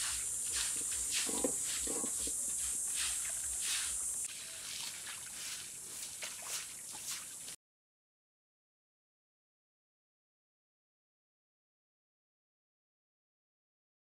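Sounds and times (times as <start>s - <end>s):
broom scrubbing wet concrete: 0.0s - 7.6s
steady hiss: 0.0s - 7.6s.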